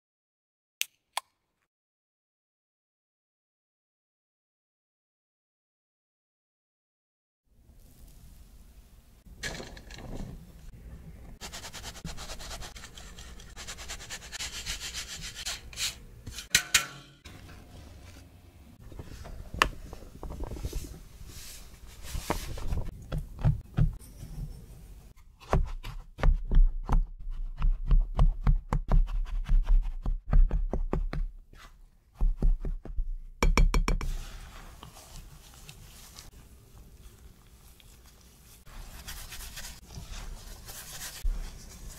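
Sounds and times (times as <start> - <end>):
hands rubbing butter into flour: 34.1 - 41.9.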